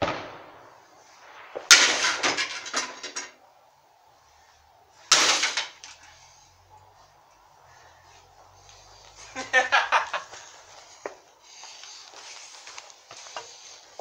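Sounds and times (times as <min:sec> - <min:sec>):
firecracker sharp cracks: 0:00.0 - 0:03.4, 0:05.0 - 0:06.0
firecrackers banging: 0:00.0 - 0:03.5, 0:04.9 - 0:06.6.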